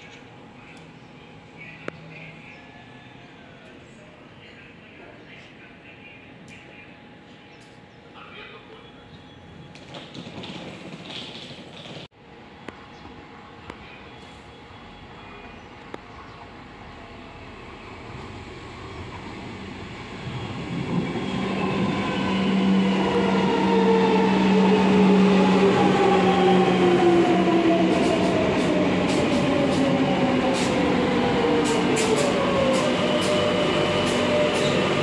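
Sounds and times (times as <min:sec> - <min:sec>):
train running noise: 0:09.6 - 0:35.0.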